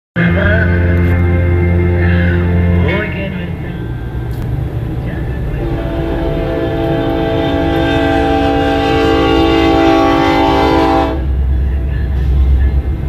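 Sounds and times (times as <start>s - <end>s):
train rumble: 0.2s - 13.0s
locomotive air horn blast: 5.2s - 12.8s.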